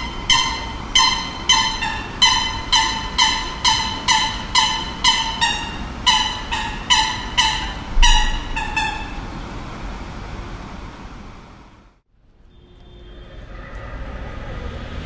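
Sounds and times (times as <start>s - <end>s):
low rumble: 0.0s - 10.4s.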